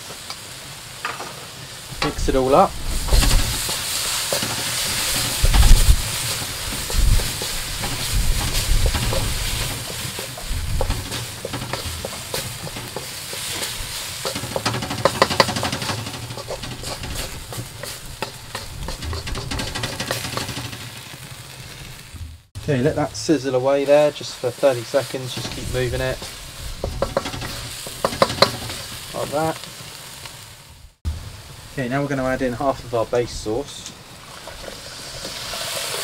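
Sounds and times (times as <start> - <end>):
paste sizzling in a pan: 0.0 - 36.0
wooden spoon scraping a pan: 2.0 - 22.2, 24.6 - 29.6
low thumps: 4.4 - 21.0, 21.7 - 22.6.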